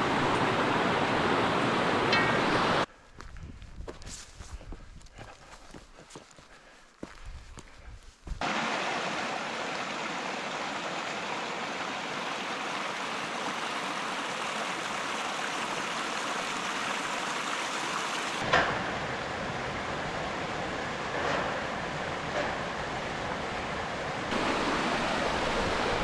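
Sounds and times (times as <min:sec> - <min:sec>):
stream running over stones: 0:08.4 - 0:26.0.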